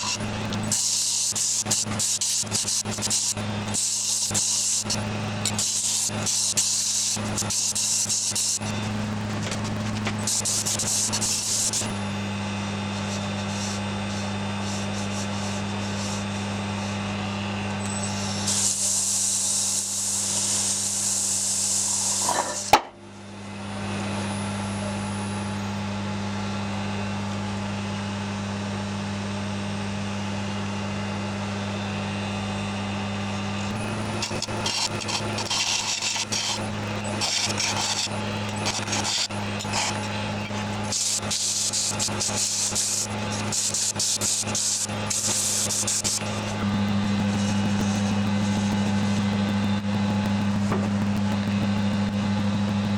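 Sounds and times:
wood lathe humming: 0.0 - 22.8, 31.7 - 52.9
tool scraping on wood: 21.9 - 22.9, 33.7 - 41.3
hissing abrasion on wood: 33.7 - 46.5.

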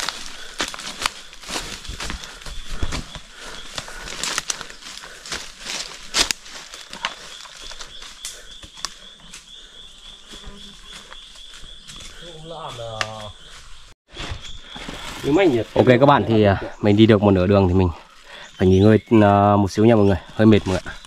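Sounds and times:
twigs snapping: 0.0 - 2.2, 3.7 - 9.4
brushing through undergrowth: 0.0 - 9.5
footsteps crunching dry leaves: 0.0 - 13.8
insect pulsing call: 0.0 - 21.0.

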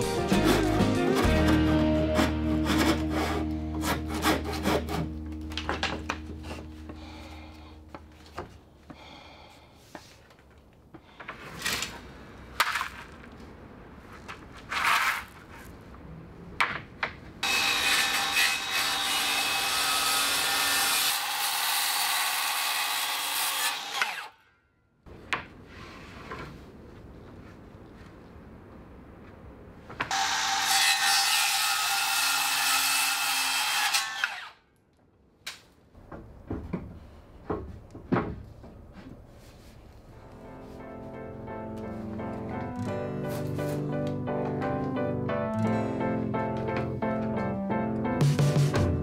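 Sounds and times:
harsh sawing of wood: 0.3 - 5.1, 30.1 - 34.5.

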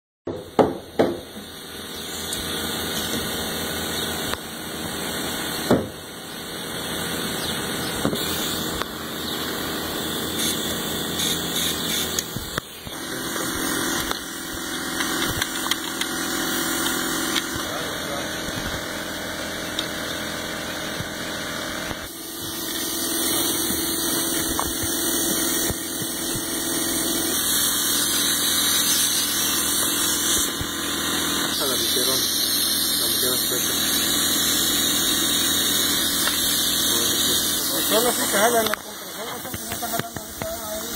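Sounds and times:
air compressor running: 0.3 - 40.9
nail gun shots: 5.6 - 6.0.

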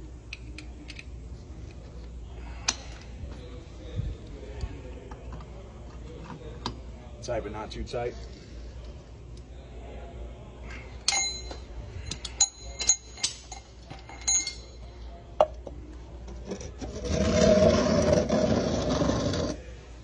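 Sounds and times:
metal tool clinking on hub: 11.0 - 15.0
rough scraping noise: 16.4 - 19.6.

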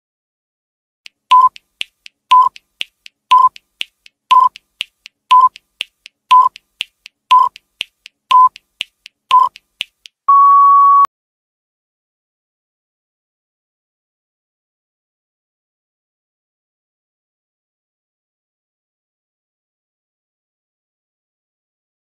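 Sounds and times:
light ticks: 1.1 - 10.2
short electronic beeps: 1.3 - 1.6, 2.3 - 2.6, 3.3 - 3.6, 4.3 - 4.6, 5.3 - 5.6, 6.3 - 6.6, 7.3 - 7.6, 8.3 - 8.6, 9.3 - 9.6, 10.3 - 11.1
long steady beep: 3.3 - 3.6, 6.3 - 6.5, 7.3 - 7.6, 9.3 - 9.5, 10.3 - 11.1.

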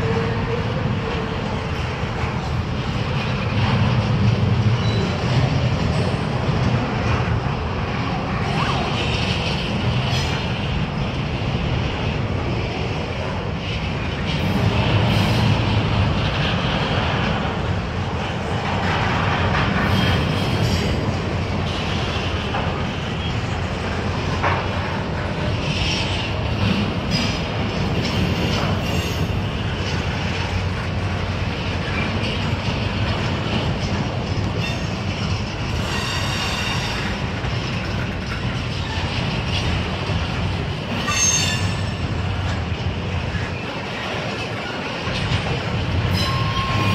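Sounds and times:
train wheels rumbling on rails: 0.0 - 46.9
high wheel squeal: 35.8 - 37.2, 41.0 - 42.0, 46.1 - 46.9.

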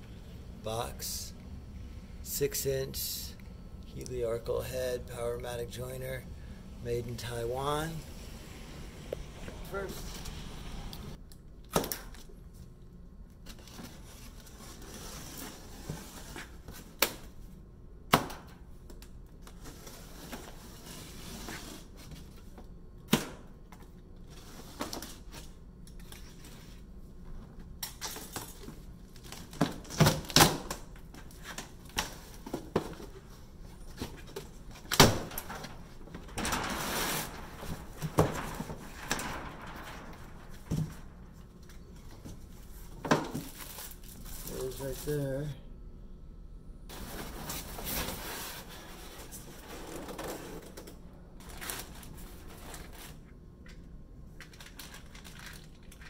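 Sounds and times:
cardboard rustling and scraping: 35.5 - 44.7, 46.9 - 50.7.

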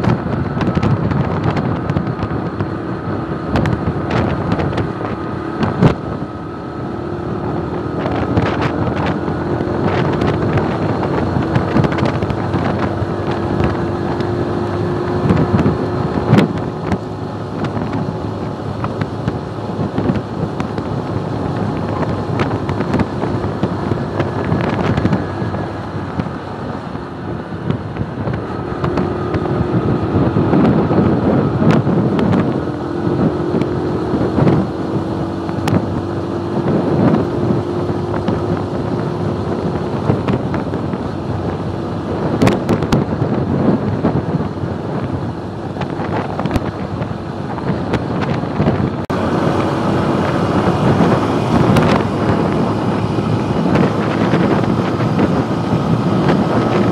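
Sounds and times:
motorcycle engine cruising: 0.0 - 56.9
wind noise on microphone: 0.0 - 56.9.

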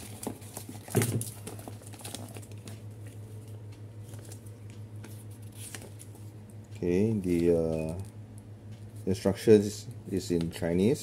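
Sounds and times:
paper rustling and crinkling: 0.0 - 6.3
steady low hum: 0.0 - 11.0.

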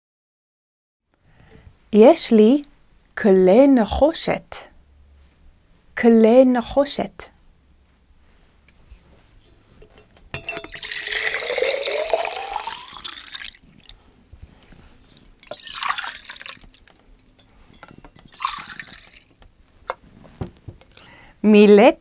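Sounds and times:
water pouring into metal mugs: 10.4 - 19.4.

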